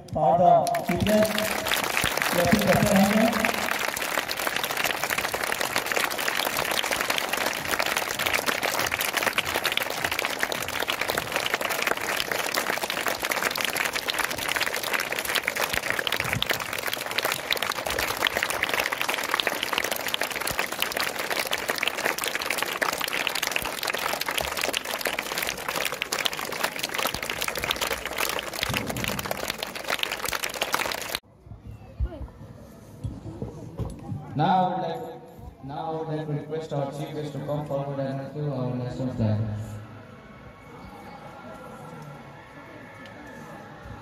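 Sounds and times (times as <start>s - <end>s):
children clapping: 0.6s - 31.2s.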